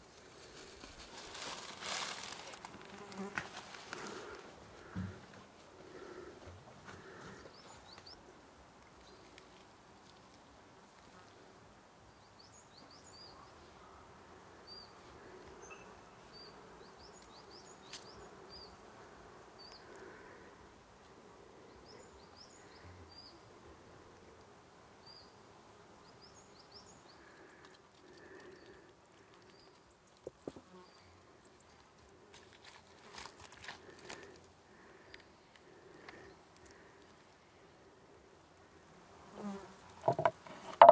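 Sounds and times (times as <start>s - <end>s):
insects buzzing: 0.3s - 5.2s, 33.0s - 40.9s.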